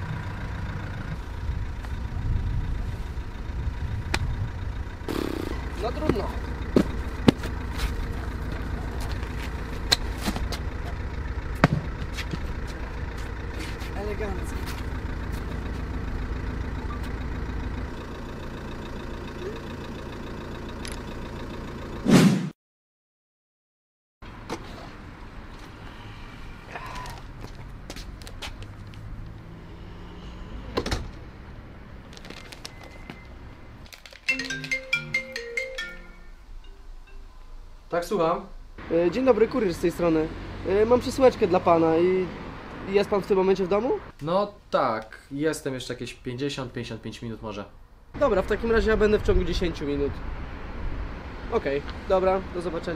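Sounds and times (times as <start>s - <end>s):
van engine idling: 0.0s - 22.0s
low traffic rumble: 0.0s - 22.1s, 24.2s - 52.9s
smartphone ringtone: 34.3s - 37.4s.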